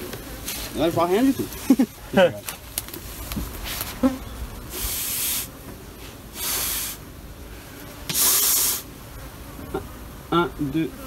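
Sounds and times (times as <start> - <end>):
bellows puffing air: 3.6 - 8.9.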